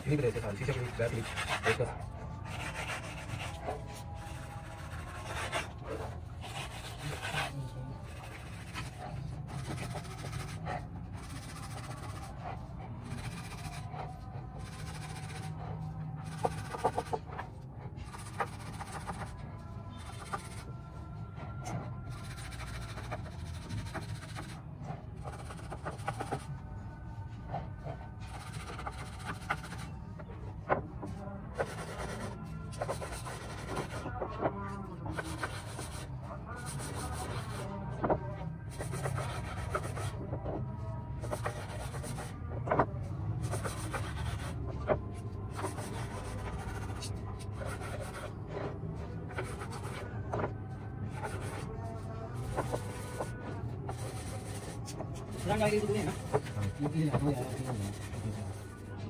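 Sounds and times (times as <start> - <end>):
sandpaper rubbing on wood: 0.0 - 17.3, 18.1 - 19.4, 20.0 - 20.7, 22.2 - 24.6, 28.2 - 29.9, 38.7 - 40.2, 41.2 - 42.4, 43.4 - 44.6, 45.5 - 48.3, 53.9 - 58.8.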